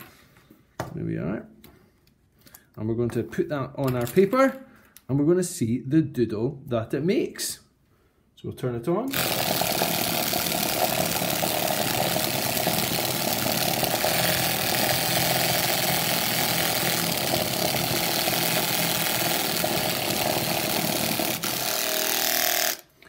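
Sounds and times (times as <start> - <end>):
plastic cup vibrating: 9.1 - 21.6.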